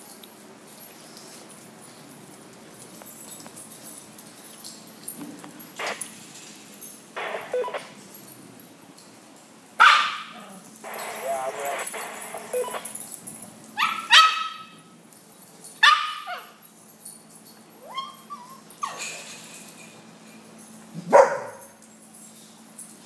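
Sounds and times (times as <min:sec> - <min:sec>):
dogs barking: 0:09.8 - 0:12.9, 0:13.8 - 0:14.8, 0:15.8 - 0:16.6, 0:21.0 - 0:21.8.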